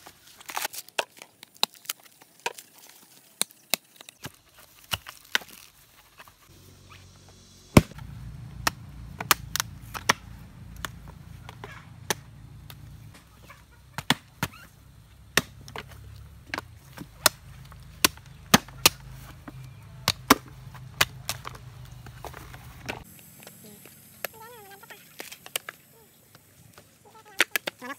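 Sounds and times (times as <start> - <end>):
low steady hum: 6.4 - 27.2
machete chopping coconuts: 7.7 - 23.1.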